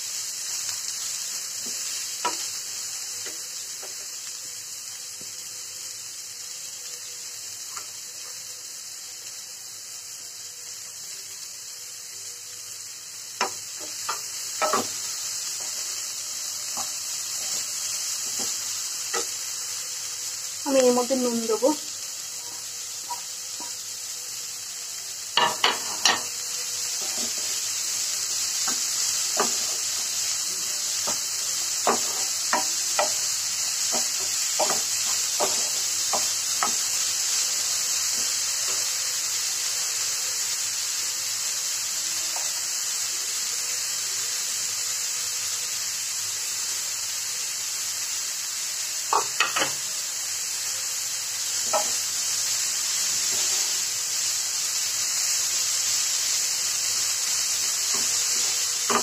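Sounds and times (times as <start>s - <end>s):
cauliflower sizzling in a pan: 0.0s - 59.0s
spatula scraping and knocking pan: 13.4s - 15.0s, 25.4s - 26.3s, 27.0s - 27.6s, 28.6s - 30.0s, 31.0s - 33.2s, 33.8s - 36.8s, 51.6s - 52.0s, 57.9s - 59.0s.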